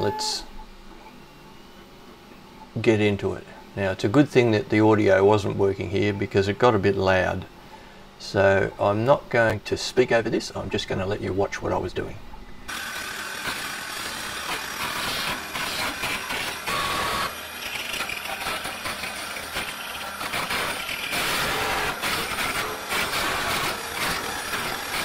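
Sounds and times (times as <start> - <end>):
lathe motor: 12.7 - 25.0.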